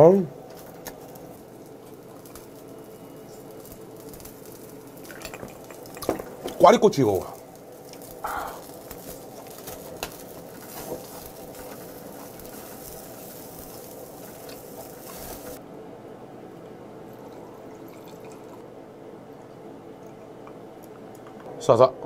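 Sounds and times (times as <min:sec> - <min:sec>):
skewers sizzling on grill: 0:00.0 - 0:15.6
liquid pouring into glass of ice: 0:04.7 - 0:06.6, 0:17.1 - 0:18.6.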